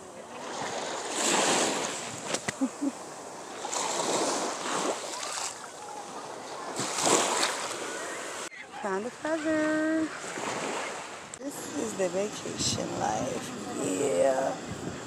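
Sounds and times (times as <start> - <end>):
surf washing on beach: 0.0 - 15.0
wind buffeting microphone: 9.0 - 15.0.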